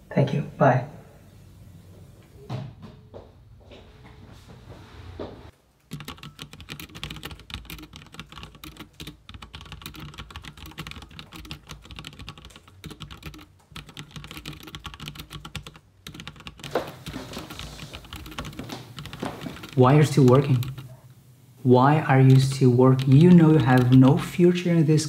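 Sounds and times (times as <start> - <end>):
fast keyboard typing: 5.9 - 21.0, 22.2 - 24.5.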